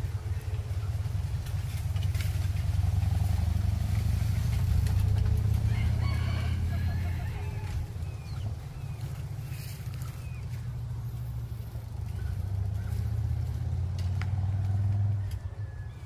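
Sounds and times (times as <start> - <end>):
faint rooster crowing: 5.4 - 8.3, 15.0 - 16.0.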